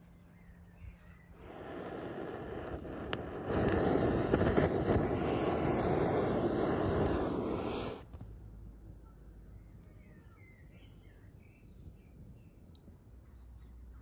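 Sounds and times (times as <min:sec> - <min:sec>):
roar of flames: 0:01.4 - 0:08.0
fire crackling: 0:01.4 - 0:08.3.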